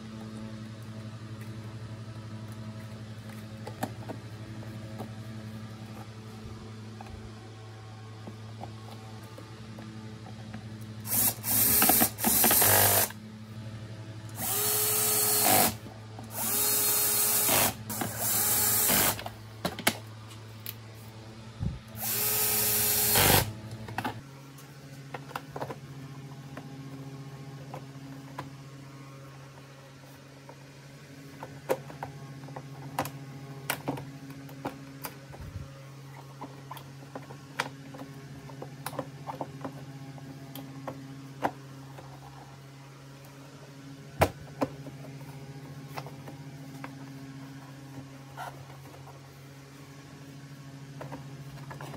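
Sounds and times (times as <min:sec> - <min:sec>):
cordless drill driving screws: 0:11.1 - 0:13.1, 0:14.4 - 0:19.2, 0:22.0 - 0:23.5.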